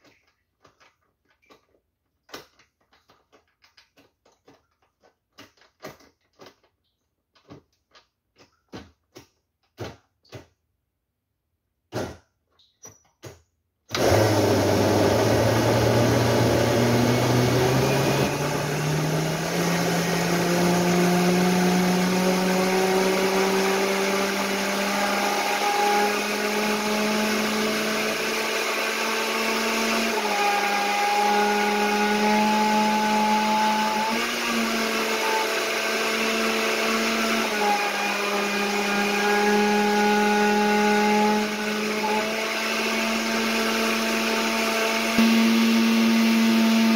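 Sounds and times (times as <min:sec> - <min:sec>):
blender motor running: 0:13.9 - 0:46.9.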